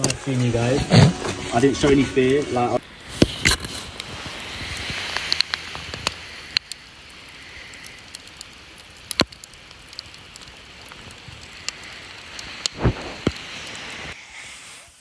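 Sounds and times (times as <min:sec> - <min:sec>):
campfire crackling: 0:00.0 - 0:15.0
sharp pops of fire: 0:02.8 - 0:14.2.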